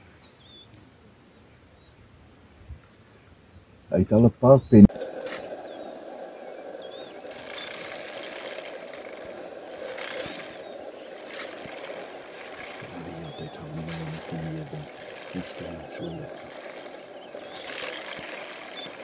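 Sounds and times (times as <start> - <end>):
vehicle engines idling: 4.0 - 19.0
faint high chirps: 4.3 - 19.0.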